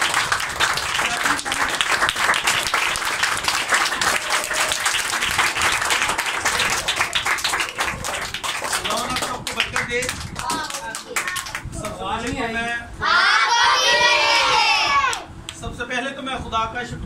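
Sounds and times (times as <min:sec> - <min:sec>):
crowd applauding: 0:00.0 - 0:11.6.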